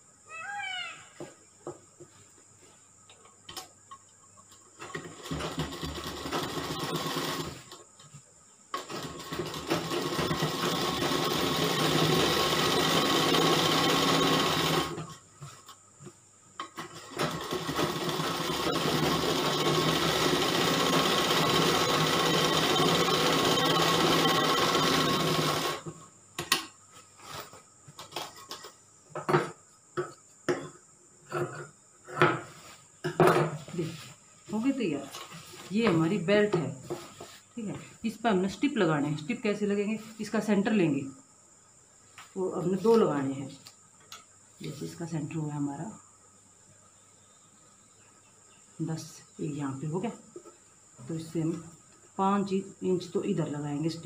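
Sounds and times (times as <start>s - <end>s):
sewing machine stitching: 4.9s - 7.8s, 8.8s - 15.0s, 16.8s - 25.9s.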